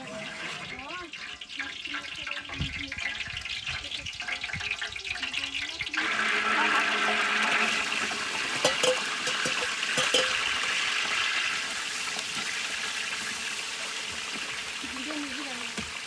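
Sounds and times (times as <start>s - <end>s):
onions sizzling in hot oil: 0.0s - 16.0s
metal ladle knocking pot: 8.4s - 10.9s.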